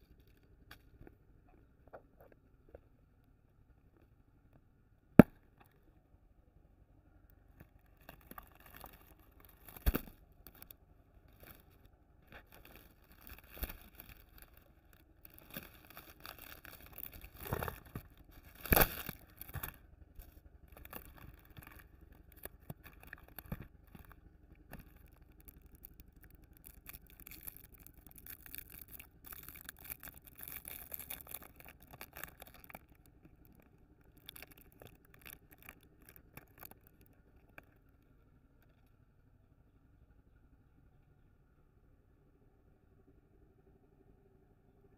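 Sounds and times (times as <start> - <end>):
foil wrappers crinkling: 7.9 - 37.8.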